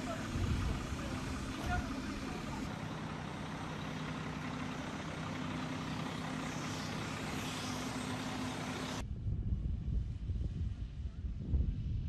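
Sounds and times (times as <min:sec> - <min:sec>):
heavy engine humming: 0:00.0 - 0:09.1.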